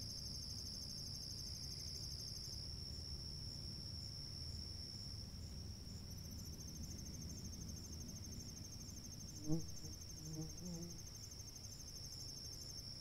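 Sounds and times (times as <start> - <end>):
rapidly pulsing insect trill: 0.0 - 13.0.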